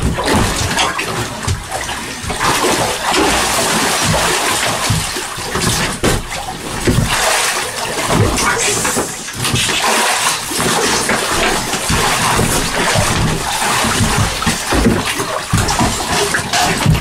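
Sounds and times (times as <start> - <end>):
fish thrashing and splashing water: 0.0 - 17.0
water splashes and sloshes: 0.0 - 17.0.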